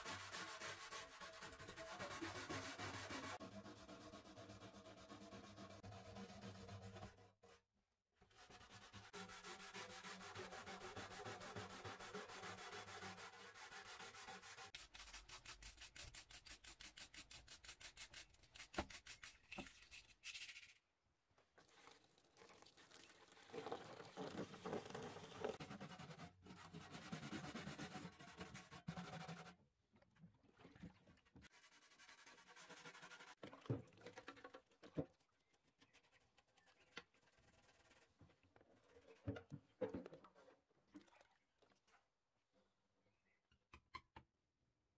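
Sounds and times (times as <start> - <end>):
brush scrubbing metal can: 0.0 - 7.2, 8.5 - 20.8, 31.5 - 33.6.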